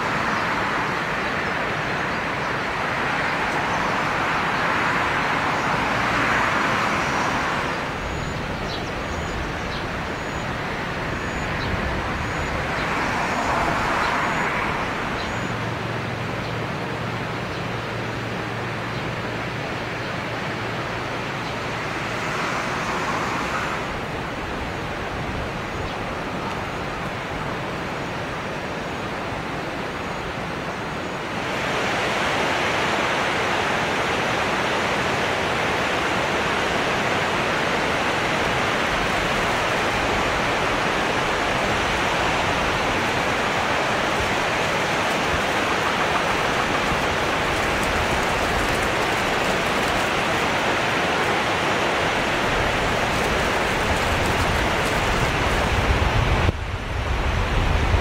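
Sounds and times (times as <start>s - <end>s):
river water rushing: 0.0s - 58.0s.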